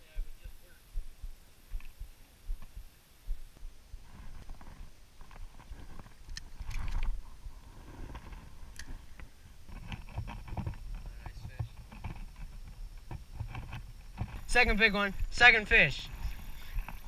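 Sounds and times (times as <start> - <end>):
low rumbling handling noise: 3.6 - 17.0.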